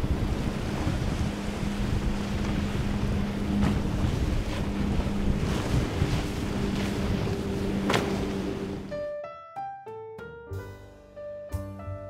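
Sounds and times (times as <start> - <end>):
wind buffeting microphone: 0.0 - 8.9
boat engine droning: 0.0 - 9.0.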